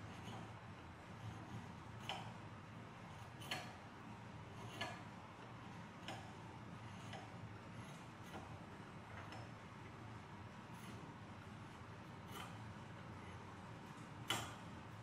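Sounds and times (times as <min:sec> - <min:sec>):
draw knife shaving wood: 0:00.0 - 0:02.4, 0:03.0 - 0:08.7, 0:10.6 - 0:14.1.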